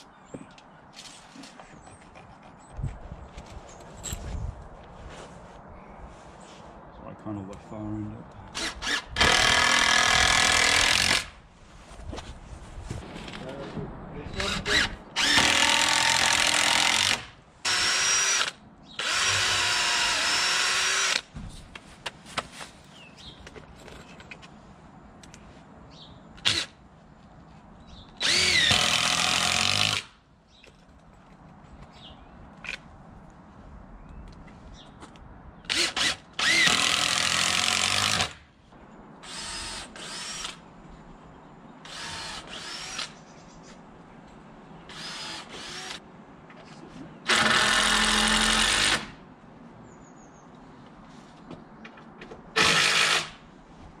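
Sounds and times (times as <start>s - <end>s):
power drill driving screws into wood: 8.5s - 11.4s, 14.4s - 21.3s, 26.4s - 26.7s, 28.2s - 30.2s, 35.7s - 38.4s, 39.2s - 40.6s, 41.8s - 43.2s, 44.9s - 46.0s, 47.2s - 49.2s, 52.6s - 53.4s.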